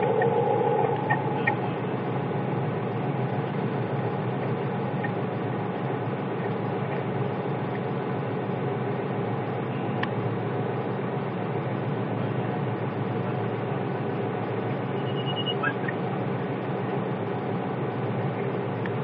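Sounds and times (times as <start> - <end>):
faint tone: 0.0 - 3.0
train rumbling on rails: 0.0 - 18.8.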